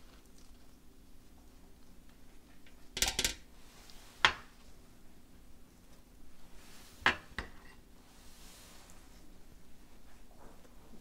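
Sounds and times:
utensils tapping dishes: 3.0 - 3.4.

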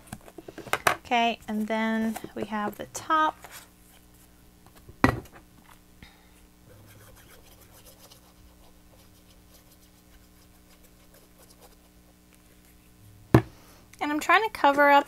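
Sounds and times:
hands rubbing paper: 6.7 - 12.9.

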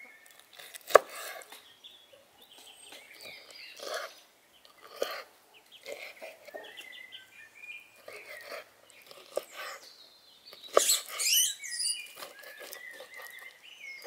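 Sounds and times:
birds chirping: 0.0 - 14.0
knife slicing liver: 10.7 - 13.4.

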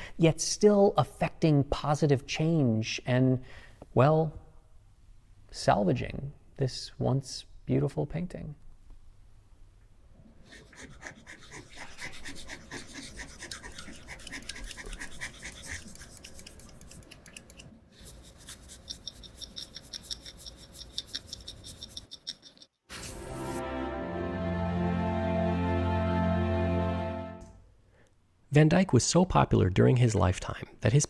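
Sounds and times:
scalpel scratching canvas: 10.6 - 17.4
wide brush sweeping canvas: 18.0 - 22.0, 22.9 - 23.8.

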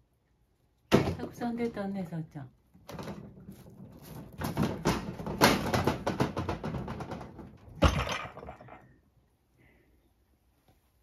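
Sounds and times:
cat clattering over pots: 2.8 - 9.0.

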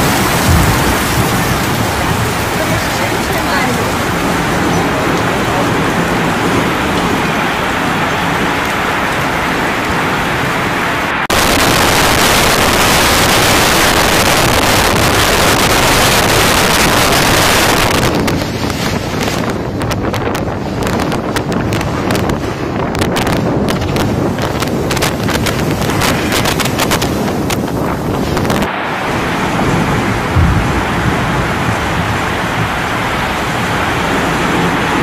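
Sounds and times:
scattered crackles and knocks: 0.0 - 4.0, 17.6 - 28.7
heavy driving rain: 0.0 - 35.0
storm wind: 0.0 - 35.0
wind buffeting microphone: 0.0 - 35.0.

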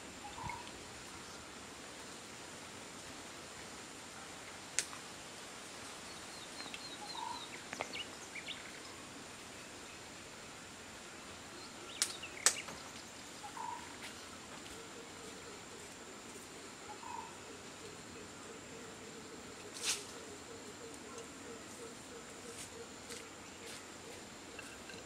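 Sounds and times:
birds chirping: 6.1 - 8.8, 11.5 - 25.0.

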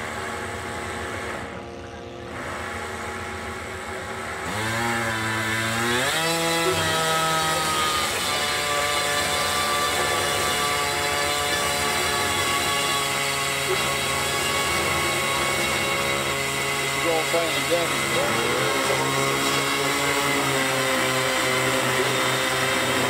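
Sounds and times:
model airplane engines running: 13.6 - 21.1.

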